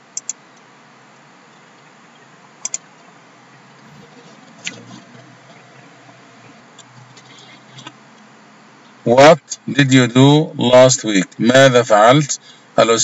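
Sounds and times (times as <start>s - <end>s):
faint steady hiss: 0.0s - 13.0s
computer mouse clicks: 0.2s - 0.4s, 2.6s - 2.9s.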